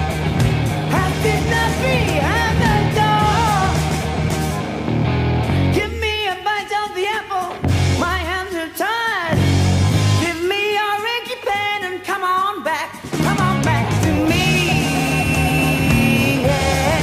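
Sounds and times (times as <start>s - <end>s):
sliding bending guitar lead line: 0.0s - 5.8s
bass guitar: 0.0s - 6.2s, 7.5s - 8.4s, 9.3s - 10.4s, 13.0s - 17.0s
electric guitar: 0.0s - 10.4s, 12.9s - 17.0s
drums: 0.0s - 17.0s.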